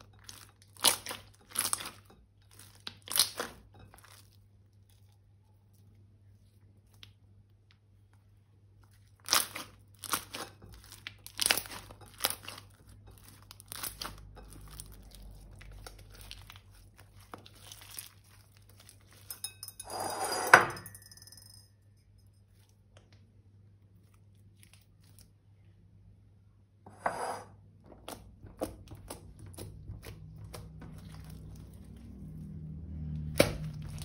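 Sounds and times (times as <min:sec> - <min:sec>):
slime crackling and popping: 0:02.8 - 0:03.6, 0:09.0 - 0:18.8, 0:33.1 - 0:34.0.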